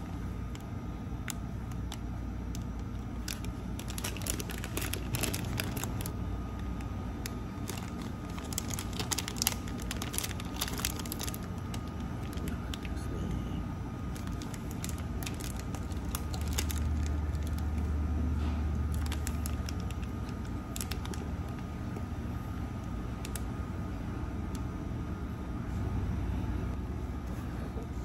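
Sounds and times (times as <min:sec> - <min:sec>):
plastic wrapper crinkling: 0:00.0 - 0:13.0, 0:14.0 - 0:17.9, 0:18.7 - 0:21.8
low room hum: 0:00.0 - 0:28.0.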